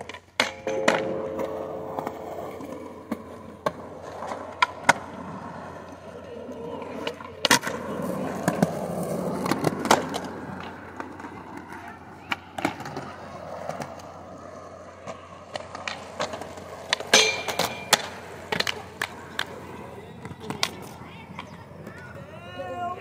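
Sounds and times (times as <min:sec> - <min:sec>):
skateboard clacks and landings: 0:00.0 - 0:22.3
skateboard wheels rolling on concrete: 0:00.0 - 0:23.0.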